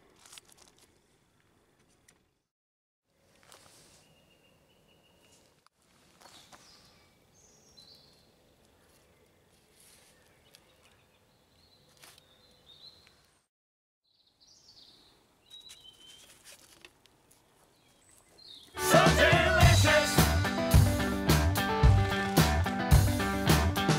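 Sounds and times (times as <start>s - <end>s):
faint bird chirps: 3.8s - 5.6s, 14.0s - 16.4s.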